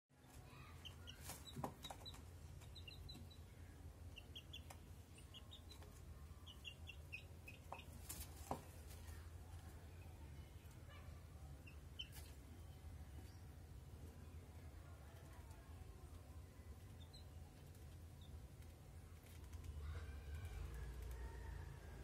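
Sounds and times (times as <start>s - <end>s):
chicks chirping: 0.2s - 9.0s, 9.9s - 13.6s, 16.8s - 21.2s.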